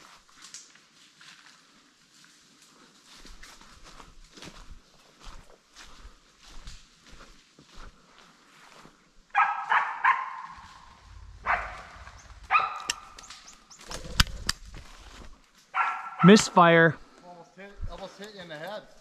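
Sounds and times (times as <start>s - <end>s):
dog barking: 9.3s - 13.2s, 15.8s - 16.4s
shotgun misfire clicks: 13.9s - 14.8s.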